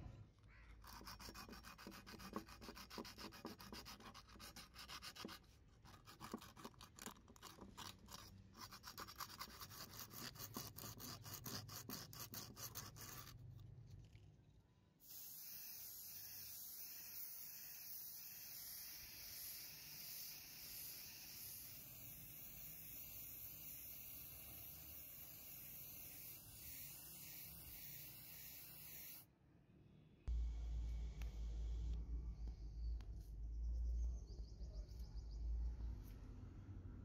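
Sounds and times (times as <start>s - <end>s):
sandpaper rubbing on metal: 0.8s - 13.4s
spray paint can hissing: 15.0s - 29.2s.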